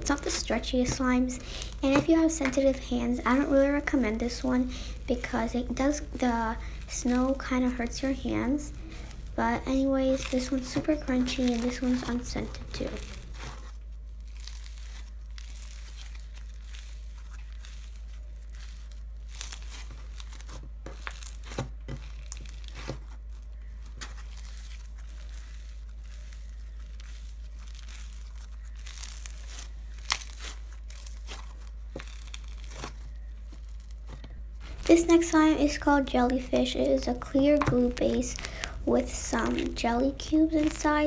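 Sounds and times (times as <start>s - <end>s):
slime crackling and crinkling: 0.0s - 41.0s
slime popping: 37.2s - 41.0s.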